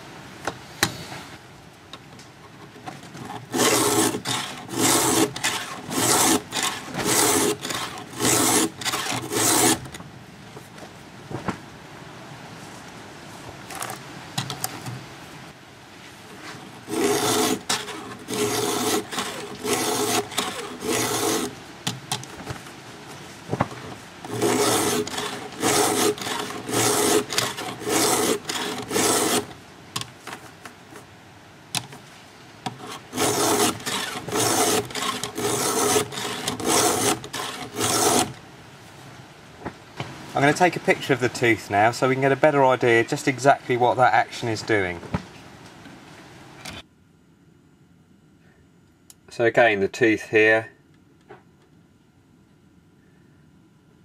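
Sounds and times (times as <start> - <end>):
file rasping on saw chain: 3.3 - 9.9, 16.8 - 21.6, 24.3 - 29.5, 32.7 - 38.4.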